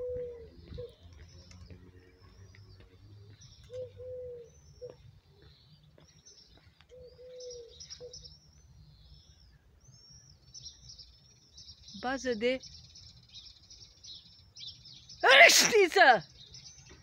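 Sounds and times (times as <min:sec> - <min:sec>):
dove cooing: 0:00.0 - 0:01.0, 0:03.3 - 0:05.0, 0:06.9 - 0:08.3
small birds chirping: 0:00.0 - 0:17.0.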